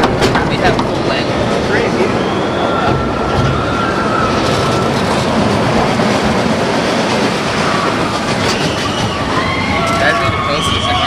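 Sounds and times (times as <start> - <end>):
train rumble and clatter: 0.0 - 11.0
thin wheel squeal: 7.6 - 11.0.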